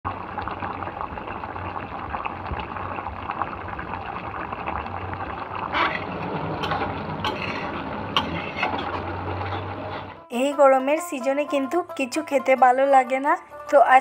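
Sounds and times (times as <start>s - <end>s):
curry bubbling and popping: 0.1s - 10.3s.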